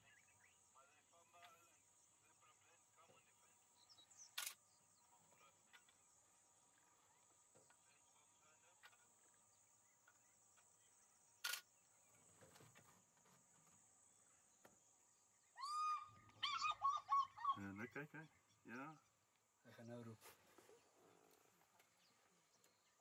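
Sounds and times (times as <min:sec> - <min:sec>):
faint insect chorus: 0:00.0 - 0:23.0
sharp click: 0:04.3 - 0:04.6, 0:11.4 - 0:11.7.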